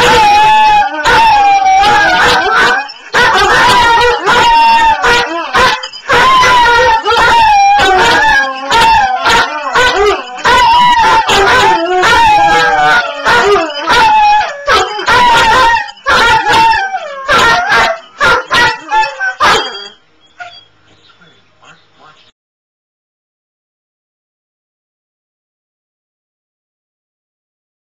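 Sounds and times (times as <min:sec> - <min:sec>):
dogs howling: 0:00.0 - 0:20.7
dogs yipping and barking: 0:00.0 - 0:21.8.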